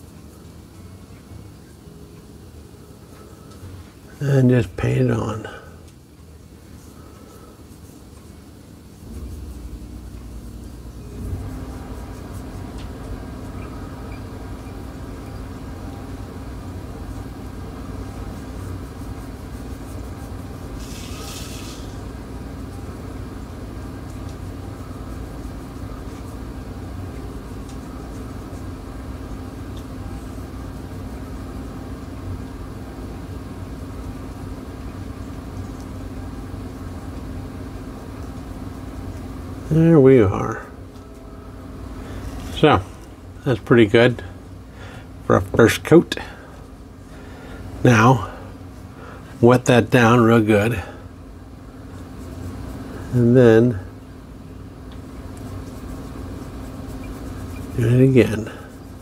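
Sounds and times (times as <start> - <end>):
machine rumbling and humming: 0.0 - 59.0
brief hiss: 20.8 - 22.0.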